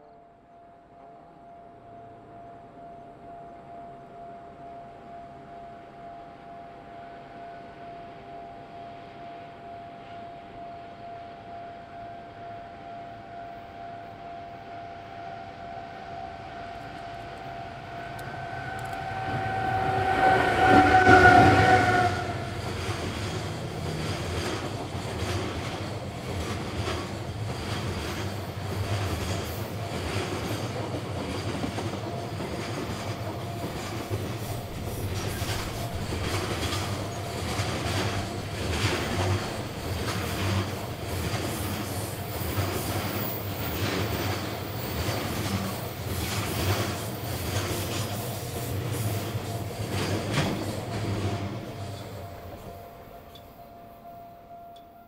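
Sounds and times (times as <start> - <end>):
locomotive high tone: 0.0 - 28.7, 29.6 - 45.0, 49.2 - 55.0
wheels clacking over rail joints: 18.1 - 52.2
freight wagons rumbling: 30.0 - 41.8.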